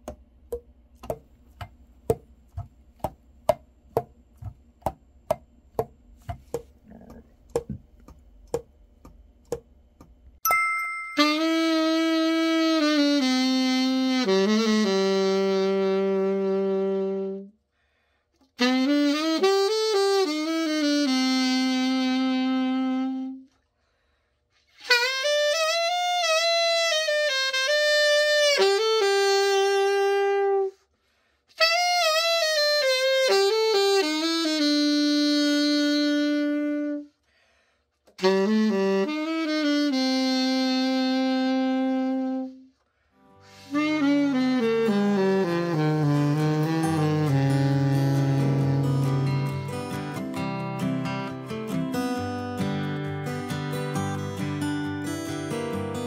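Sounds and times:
alto saxophone melodic phrases: 0:11.2 - 0:17.6, 0:18.6 - 0:23.6, 0:24.7 - 0:30.9, 0:31.5 - 0:37.2, 0:38.1 - 0:56.0
player breathing: 0:17.7 - 0:18.4, 0:37.2 - 0:38.0.

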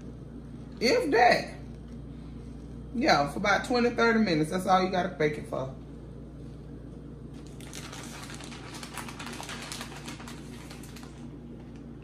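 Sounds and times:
steady low hum: 0:00.0 - 0:12.0
plastic bag crinkling: 0:07.3 - 0:12.0.

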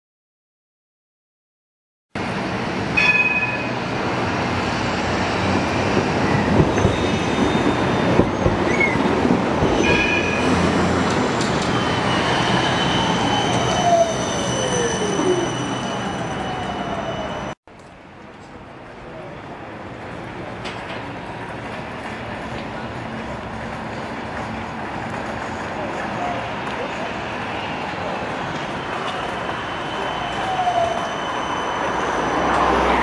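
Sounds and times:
tram passing: 0:02.2 - 0:33.0
high wheel squeals: 0:06.2 - 0:10.8, 0:11.5 - 0:17.6, 0:26.2 - 0:33.0.

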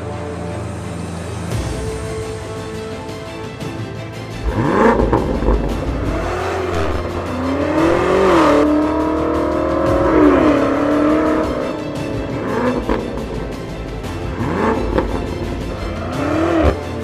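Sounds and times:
music: 0:00.0 - 0:17.0
car engine revving: 0:04.4 - 0:17.0.

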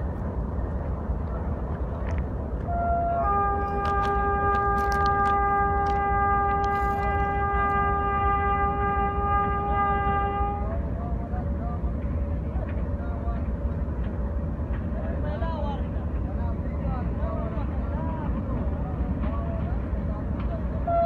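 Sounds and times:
diesel locomotive horn: 0:02.6 - 0:11.0, 0:20.8 - 0:21.0.

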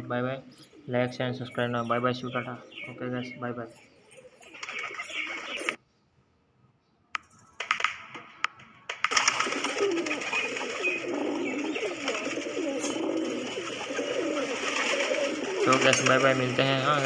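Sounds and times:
pigeons cooing: 0:00.0 - 0:05.8, 0:09.1 - 0:17.0
sharp clicks: 0:07.2 - 0:09.5.

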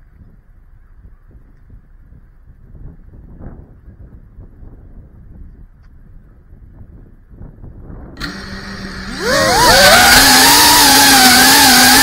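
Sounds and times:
drone motors humming and whining: 0:08.2 - 0:12.0.

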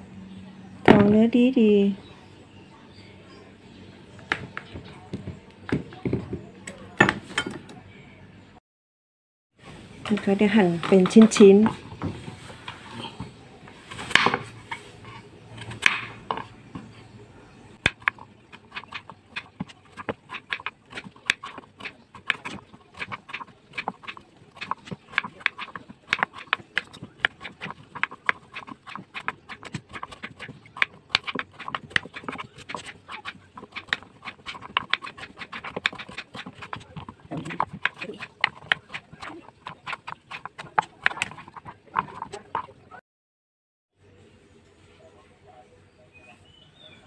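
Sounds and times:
knife chopping on wooden board: 0:15.6 - 0:16.9, 0:17.9 - 0:42.7.

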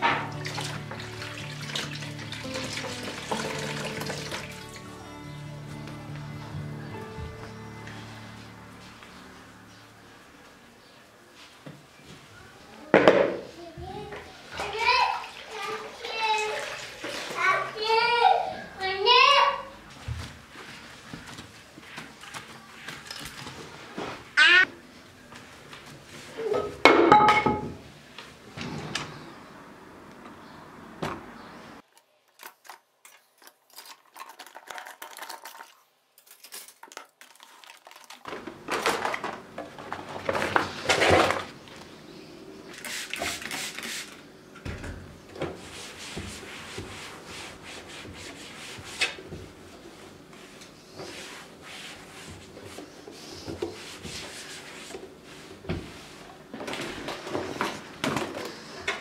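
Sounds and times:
cloth rubbing on tiled floor: 0:45.6 - 0:56.5.

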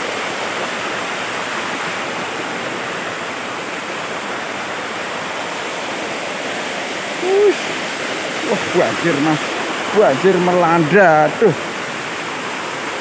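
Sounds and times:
river rushing over rocks: 0:00.0 - 0:13.0
short vocal sound: 0:07.2 - 0:07.6.

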